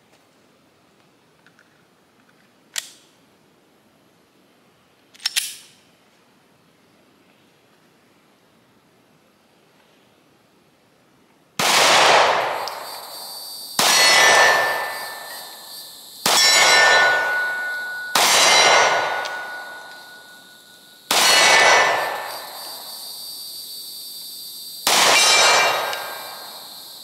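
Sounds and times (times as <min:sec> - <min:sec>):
pistol shots: 0:11.6 - 0:13.2, 0:13.8 - 0:15.6, 0:16.2 - 0:20.4, 0:21.1 - 0:22.9, 0:24.8 - 0:26.6
steel target ringing: 0:12.3 - 0:23.0, 0:24.9 - 0:26.7.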